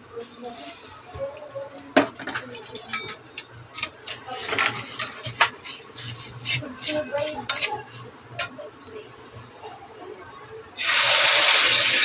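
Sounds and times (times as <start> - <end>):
metal spatula scraping pan: 2.6 - 8.5.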